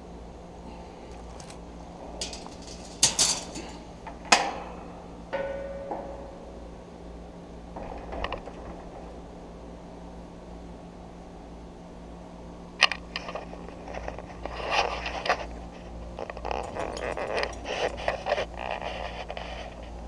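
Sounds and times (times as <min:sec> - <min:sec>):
scraping and rattling: 0:00.7 - 0:04.3, 0:13.2 - 0:20.0.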